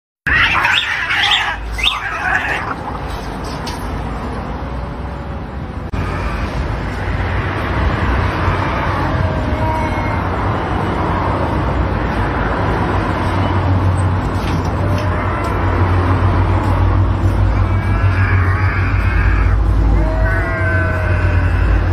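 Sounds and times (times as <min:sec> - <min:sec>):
cats wavering cries: 0:00.3 - 0:03.0, 0:08.3 - 0:10.8, 0:14.6 - 0:21.9.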